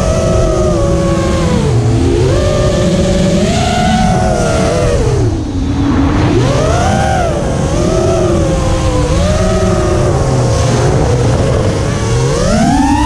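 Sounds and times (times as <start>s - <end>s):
drone motors whining: 0.0s - 13.0s
rough low rushing noise: 4.4s - 9.2s.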